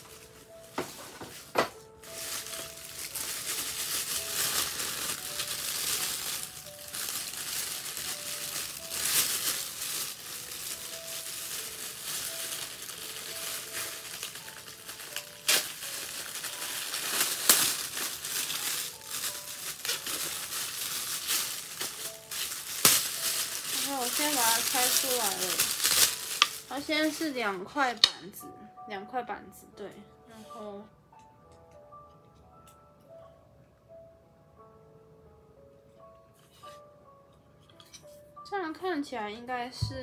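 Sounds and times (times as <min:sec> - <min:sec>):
plastic wrapping crinkling: 0:00.0 - 0:28.1.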